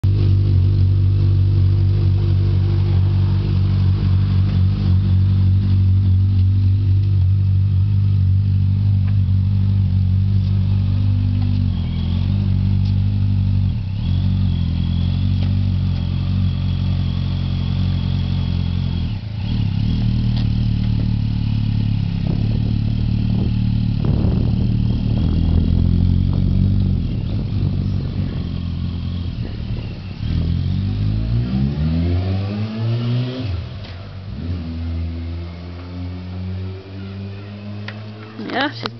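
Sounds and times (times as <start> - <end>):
motorcycle engine running: 0.0 - 31.8.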